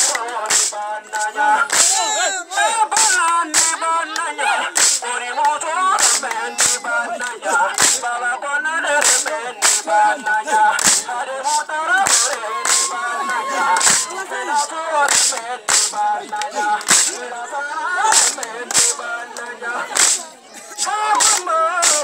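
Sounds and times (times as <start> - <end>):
sharp percussive crack on beat: 0.0 - 2.1, 2.9 - 3.8, 4.7 - 6.9, 7.7 - 8.2, 8.9 - 17.2, 18.0 - 19.0, 19.9 - 20.2, 20.8 - 22.0
voices singing or chanting: 0.0 - 22.0.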